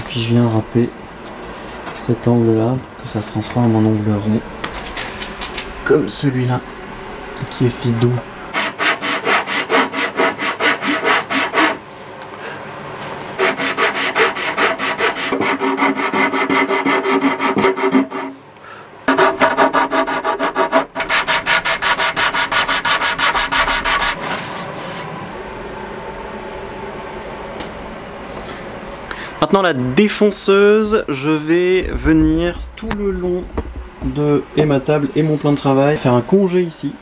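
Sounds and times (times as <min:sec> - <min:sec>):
hand rasp scraping wood: 0:08.6 - 0:11.8, 0:13.4 - 0:18.4, 0:19.1 - 0:24.3.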